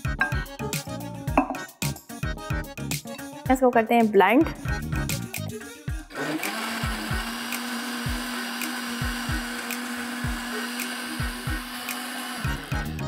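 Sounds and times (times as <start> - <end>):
countertop blender running: 6.1 - 13.0.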